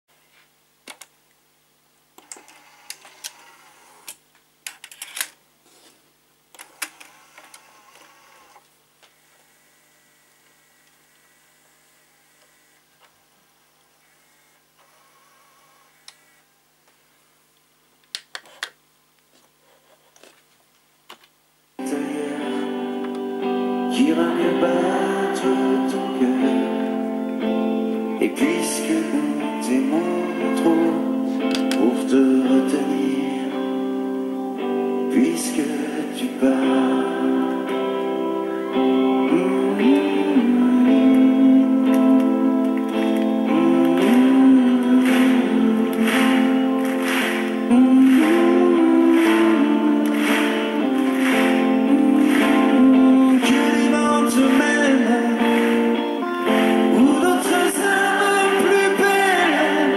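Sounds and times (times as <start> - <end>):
motor whir: 2.2 - 4.2, 6.5 - 13.2, 13.9 - 16.6
song with guitar: 21.8 - 59.9.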